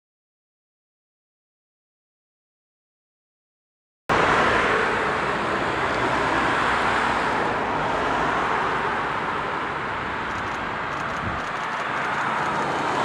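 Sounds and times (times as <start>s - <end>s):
traffic rushing hum: 4.1s - 13.0s.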